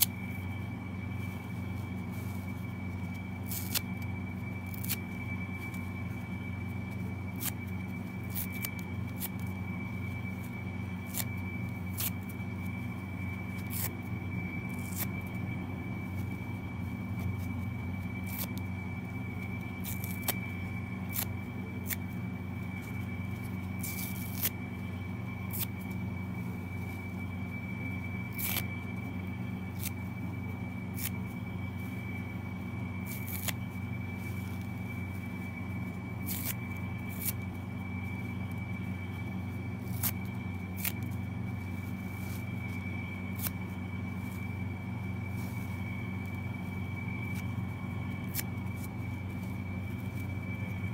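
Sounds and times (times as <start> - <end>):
faint high whine: 0.0 - 50.9
steady low hum: 0.0 - 50.9
sponges tearing: 3.4 - 4.0, 19.8 - 20.4, 28.3 - 28.7, 33.1 - 33.6, 36.2 - 37.4, 39.8 - 41.2.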